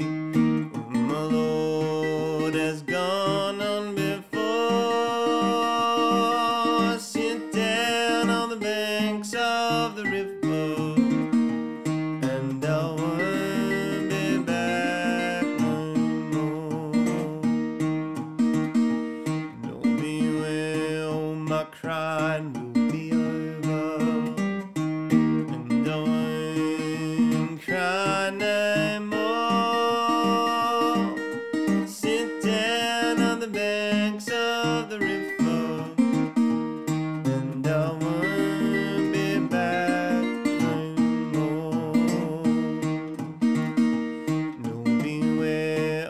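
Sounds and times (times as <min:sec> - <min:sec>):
fingerpicked resonator guitar: 0:00.0 - 0:46.0
man singing: 0:00.7 - 0:18.0, 0:19.2 - 0:43.6, 0:44.3 - 0:46.0.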